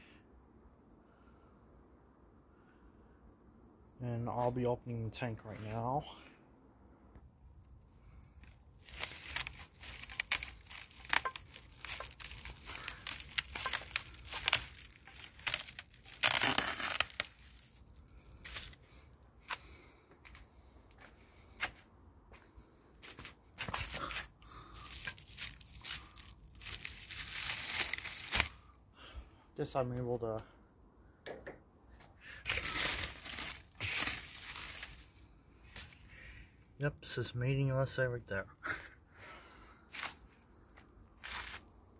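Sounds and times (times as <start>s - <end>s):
plastic wrap crinkling: 8.4s - 18.8s, 23.8s - 28.7s, 32.4s - 36.3s, 41.2s - 41.7s.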